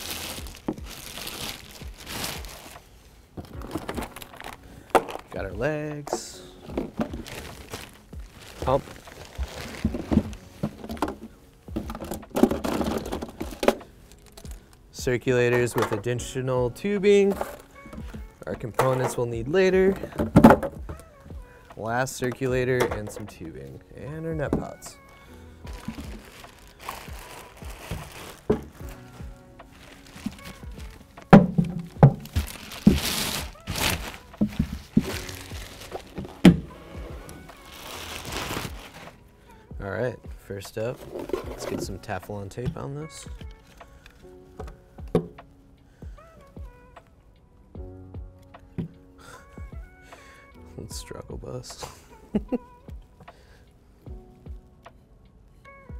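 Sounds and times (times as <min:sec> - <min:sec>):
plastic packaging crinkling: 0:00.0 - 0:05.4, 0:06.6 - 0:14.8, 0:24.5 - 0:39.2
background music: 0:00.0 - 0:55.9
plastic buckets knocking: 0:03.4 - 0:05.4, 0:06.1 - 0:13.9, 0:19.8 - 0:21.0, 0:22.3 - 0:23.4, 0:25.7 - 0:29.0, 0:29.8 - 0:37.2, 0:41.0 - 0:42.0, 0:44.6 - 0:45.4.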